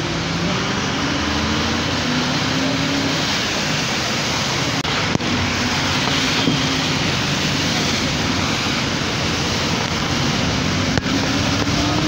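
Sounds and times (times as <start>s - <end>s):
rain on vehicle: 0.0s - 12.0s
vehicle engine hum and road noise: 0.0s - 12.0s.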